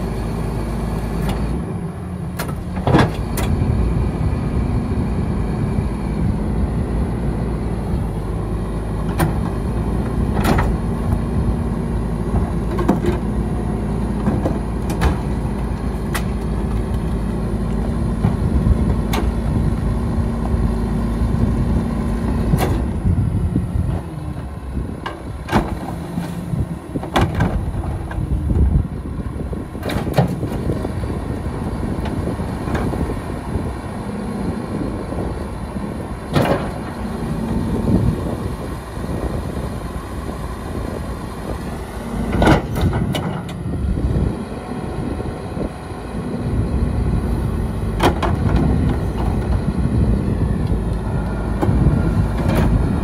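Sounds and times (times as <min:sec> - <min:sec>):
garbage truck running: 0:00.0 - 0:53.0
steady truck hum: 0:00.0 - 0:53.0
trash cart clanking against hopper: 0:09.0 - 0:11.2, 0:12.3 - 0:13.3, 0:14.1 - 0:17.0, 0:25.0 - 0:28.7, 0:29.5 - 0:33.7, 0:35.9 - 0:38.4, 0:42.2 - 0:43.7, 0:47.8 - 0:49.7.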